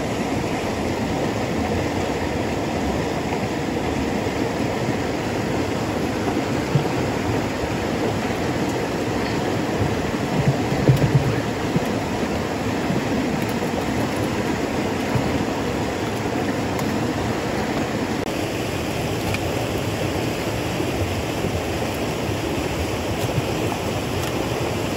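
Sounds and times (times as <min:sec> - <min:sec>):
stream rushing over rocks: 0:00.0 - 0:24.9
wooden box knocking on rock: 0:09.8 - 0:12.0.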